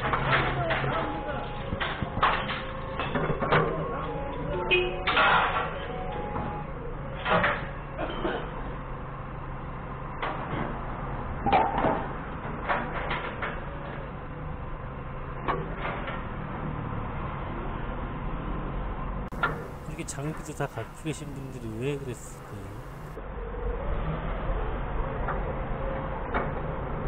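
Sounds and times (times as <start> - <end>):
diesel engine idling: 19.3 - 23.2.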